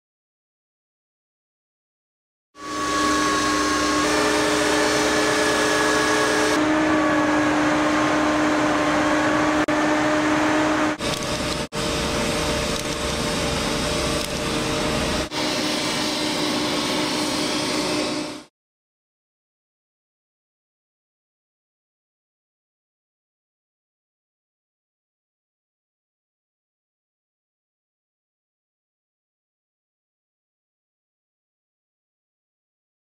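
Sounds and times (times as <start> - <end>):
concrete saw cutting with whine: 2.6 - 18.5.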